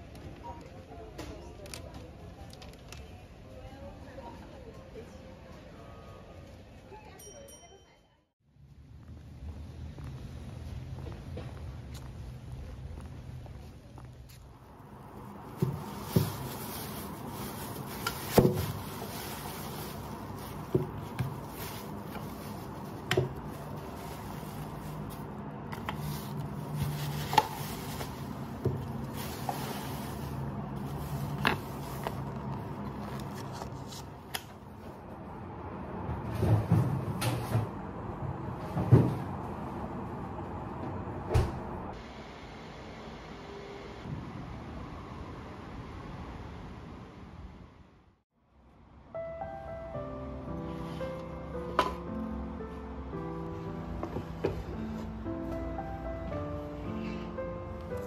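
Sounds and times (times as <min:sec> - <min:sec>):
plastic bag rustling: 0:14.7 - 0:34.2.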